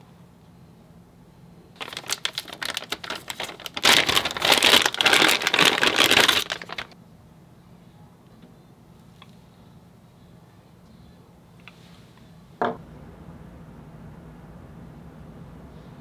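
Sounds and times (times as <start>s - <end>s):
plastic bag crinkling: 1.8s - 7.0s.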